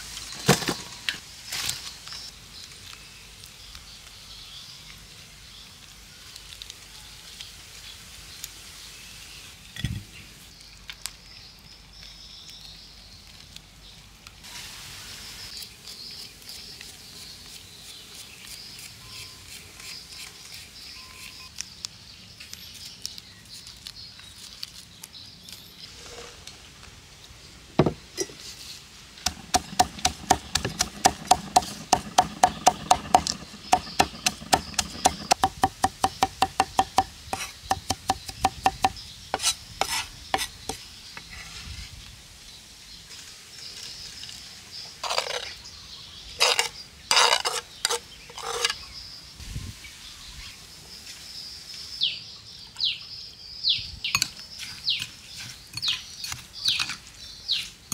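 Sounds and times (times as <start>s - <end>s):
cleaver chopping on wooden board: 29.3s - 40.5s.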